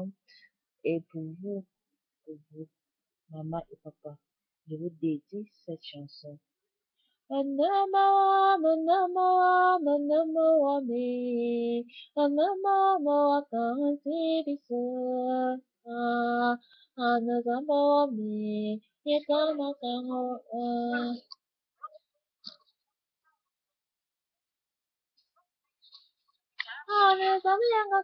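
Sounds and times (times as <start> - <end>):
woman singing a hymn: 7.3 - 21.2, 26.8 - 28.0.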